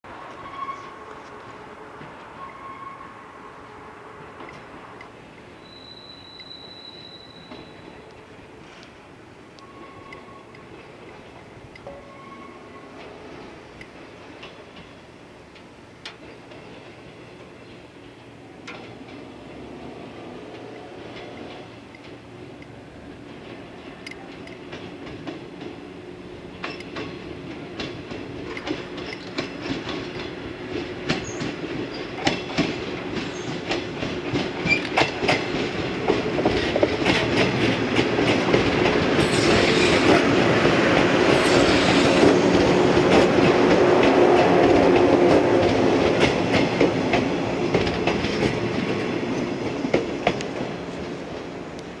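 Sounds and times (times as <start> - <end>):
train running hum: 0.1 - 52.0
train wheels clicking over rail joints: 13.0 - 52.0.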